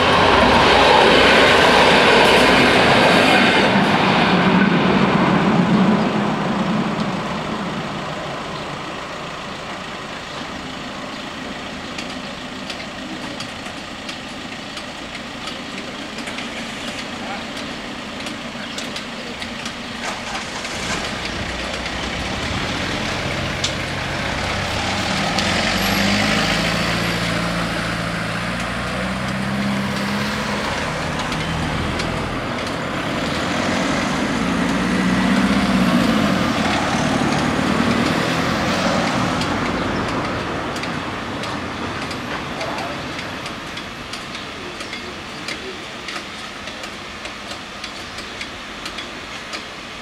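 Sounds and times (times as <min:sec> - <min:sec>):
cars passing close by: 0:00.0 - 0:50.0.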